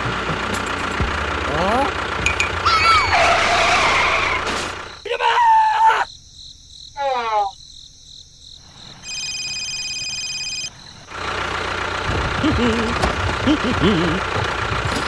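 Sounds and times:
engine-like drone: 0:00.0 - 0:05.0, 0:10.7 - 0:15.0
falling run of chirps: 0:02.4 - 0:06.2.

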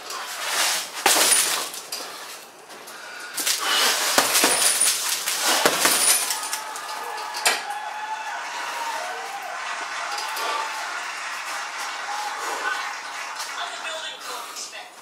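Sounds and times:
punches thudding on tyre bag: 0:03.4 - 0:06.4.

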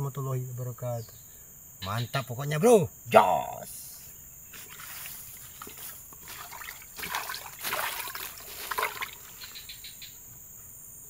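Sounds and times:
insects droning: 0:00.0 - 0:11.0
footsteps in dry leaves: 0:04.5 - 0:09.6.

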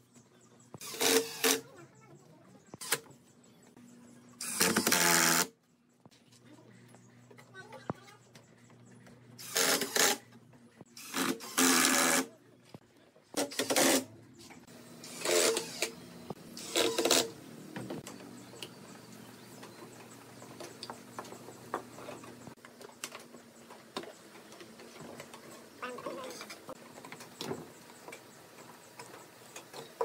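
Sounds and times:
cordless drill driving screws: 0:00.8 - 0:01.6, 0:04.4 - 0:05.5, 0:09.4 - 0:10.2, 0:15.0 - 0:16.0, 0:16.6 - 0:17.3.

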